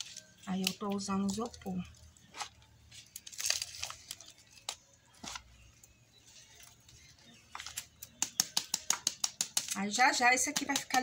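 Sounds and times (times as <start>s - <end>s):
styrofoam crunching and crackling: 0.0s - 5.7s
styrofoam snapping: 2.4s - 5.5s, 7.6s - 9.8s.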